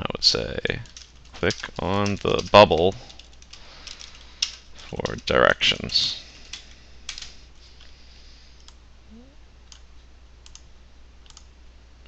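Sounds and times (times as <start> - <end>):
low steady hum: 0.0 - 12.0
keyboard and mouse clicks: 10.4 - 11.5.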